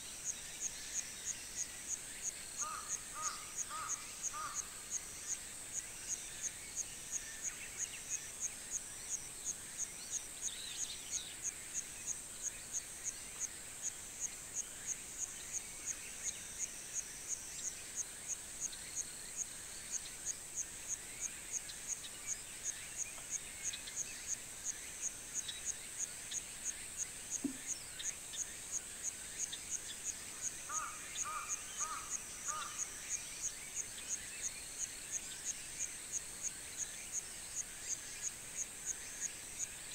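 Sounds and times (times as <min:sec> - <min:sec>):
faint bird chirps: 0:00.0 - 0:39.9
insects droning and chirping: 0:00.0 - 0:39.9.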